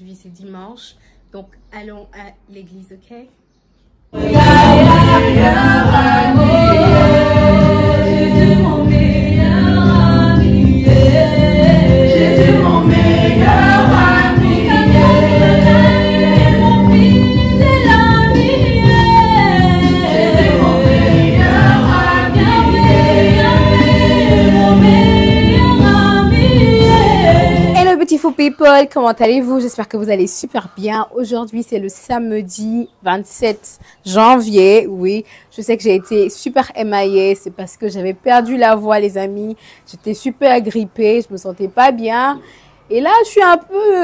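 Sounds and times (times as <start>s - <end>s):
group singing gospel song: 4.1s - 27.9s.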